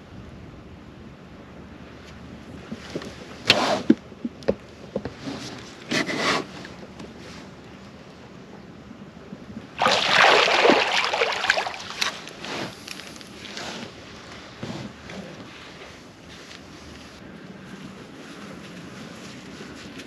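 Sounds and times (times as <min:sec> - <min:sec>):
fish splashing in water: 0:09.8 - 0:12.8.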